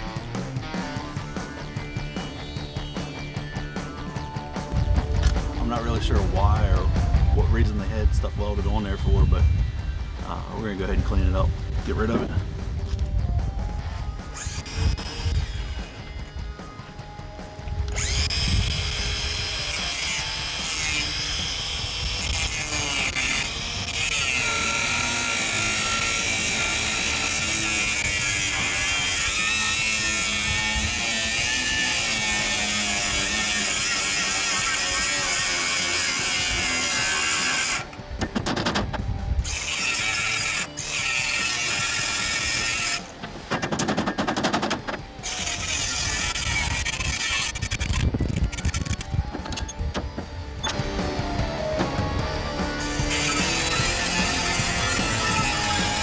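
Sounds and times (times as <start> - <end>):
angle grinder grinding metal: 0.8 - 5.6, 14.0 - 38.0, 39.4 - 49.8, 52.4 - 56.0.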